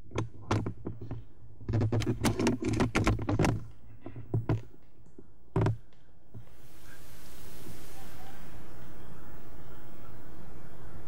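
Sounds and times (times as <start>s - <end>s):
low steady hum: 3.6s - 11.0s.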